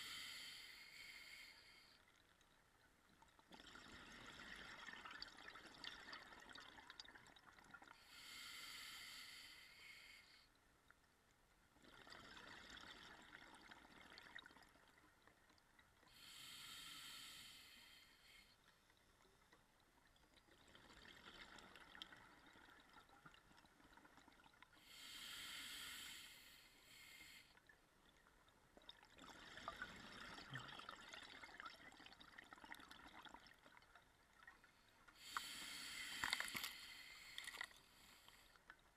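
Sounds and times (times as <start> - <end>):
regulator inhalation hiss: 0.0 - 1.9, 8.1 - 10.4, 16.2 - 18.5, 24.9 - 27.5, 35.2 - 38.4
exhaled bubbles: 28.8 - 35.3.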